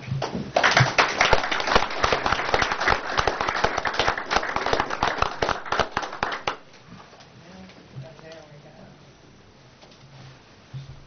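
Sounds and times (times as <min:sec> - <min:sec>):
audience applauding: 0:00.5 - 0:06.7.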